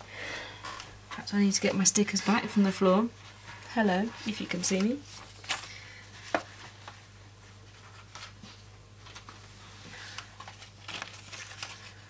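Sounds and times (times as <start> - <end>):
low steady hum: 0.0 - 12.0
paper sheets tapping and rustling: 4.5 - 7.1, 7.7 - 12.0.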